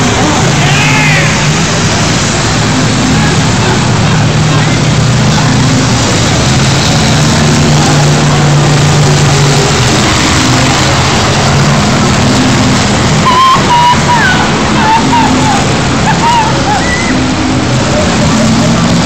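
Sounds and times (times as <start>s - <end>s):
race car engines droning: 0.0s - 19.0s.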